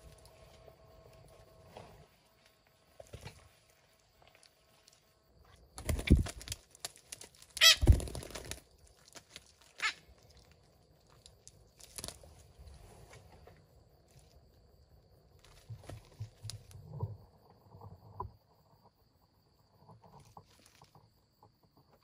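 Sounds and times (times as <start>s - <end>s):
parrots flapping wings: 5.8s - 8.7s.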